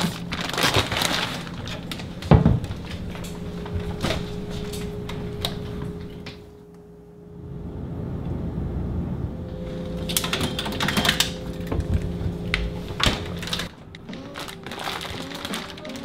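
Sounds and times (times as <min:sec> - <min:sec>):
refrigerator low hum: 0:00.0 - 0:16.0
fridge door shutting: 0:01.8 - 0:06.3, 0:09.9 - 0:13.7.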